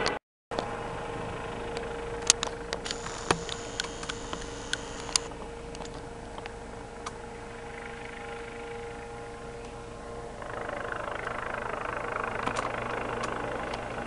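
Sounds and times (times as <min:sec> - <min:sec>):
steady low hum: 0:00.6 - 0:14.0
faint held tone: 0:01.6 - 0:10.2
small sharp clicks and taps: 0:02.3 - 0:07.2.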